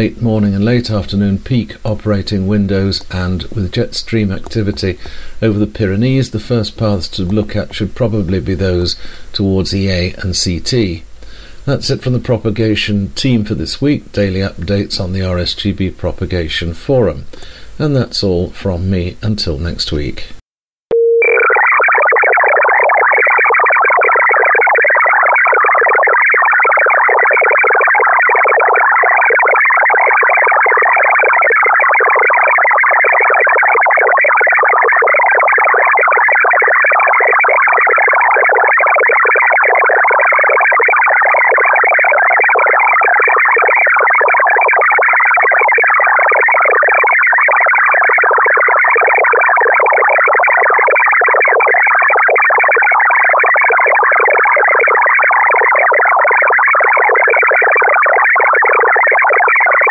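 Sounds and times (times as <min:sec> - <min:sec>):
digital data signal warble: 0:20.9 - 0:59.9.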